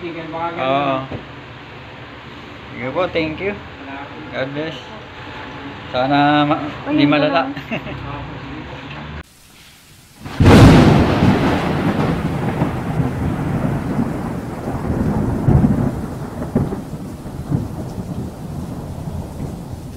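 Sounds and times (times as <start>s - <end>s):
rain-like hiss: 0.0s - 8.3s, 9.2s - 19.9s
thunder clap and rumbles: 10.2s - 19.9s.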